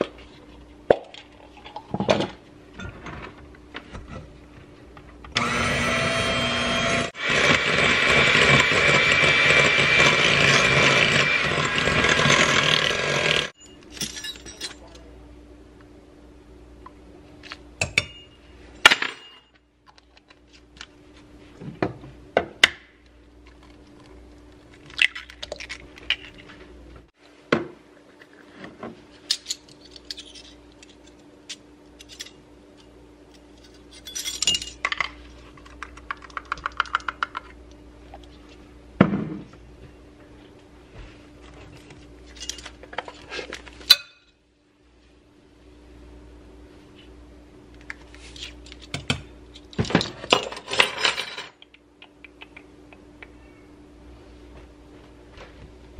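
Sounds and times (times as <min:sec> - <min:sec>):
electric hand mixer whirring: 0:05.4 - 0:13.5
utensils clinking on glass bowl: 0:13.6 - 0:15.0, 0:33.7 - 0:35.1.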